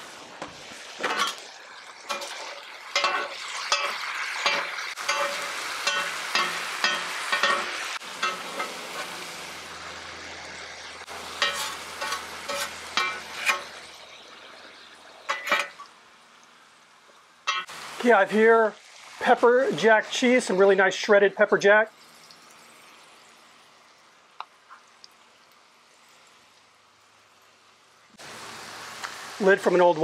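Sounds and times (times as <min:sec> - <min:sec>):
meat sizzling on a griddle: 0:00.0 - 0:30.0
steel clanking on griddle: 0:00.4 - 0:09.2, 0:11.1 - 0:14.0, 0:15.3 - 0:15.9, 0:17.4 - 0:17.8
metal spatulas scraping: 0:01.0 - 0:01.4, 0:02.1 - 0:09.2, 0:11.3 - 0:13.8, 0:15.3 - 0:15.8.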